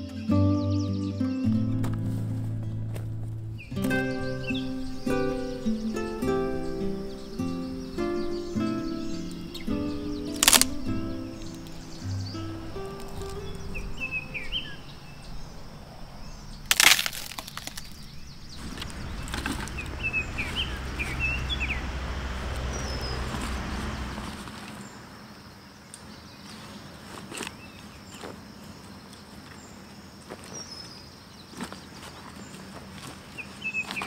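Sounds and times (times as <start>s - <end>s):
birds chirping: 0.0s - 26.8s
sticks rustling and clicking: 10.3s - 10.9s, 16.6s - 19.7s
dry stick snapping: 10.3s - 12.0s, 12.9s - 14.0s, 16.6s - 20.0s.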